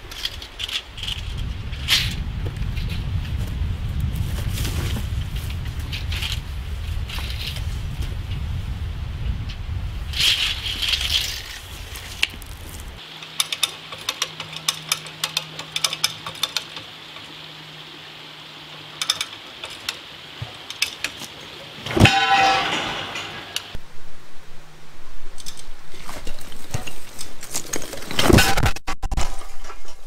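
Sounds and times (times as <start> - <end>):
concrete blocks crashing down: 21.9 - 23.6.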